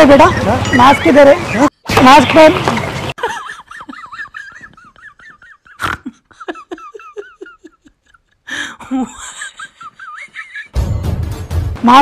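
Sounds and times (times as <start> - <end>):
person laughing: 3.2 - 10.8.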